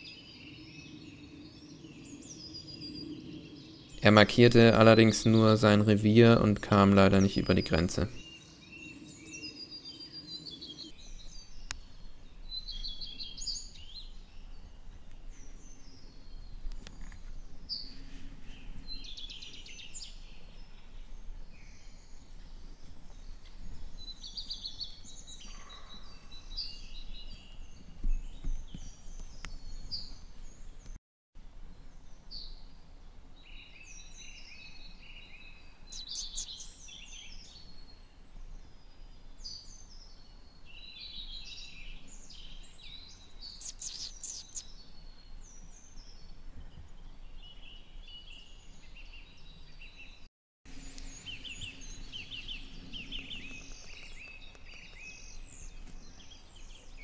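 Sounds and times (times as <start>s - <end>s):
songbirds singing: 0.0s - 57.0s.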